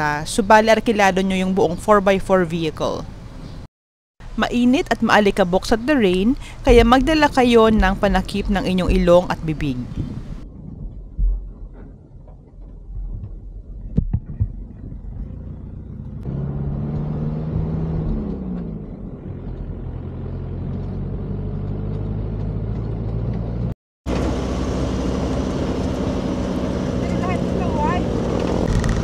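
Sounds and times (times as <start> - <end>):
engine driving over rough ground: 6.0 - 29.0.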